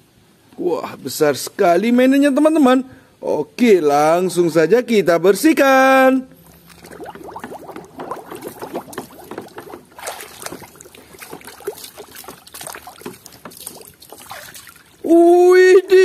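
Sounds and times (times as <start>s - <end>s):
water sloshing in a plastic tub: 6.3s - 15.3s.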